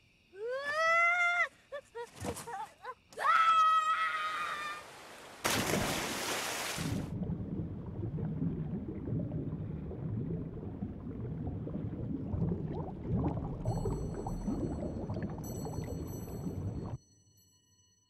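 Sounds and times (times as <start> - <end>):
loud splash: 4.9 - 17.0
underwater rumble with bubbling: 6.9 - 17.0.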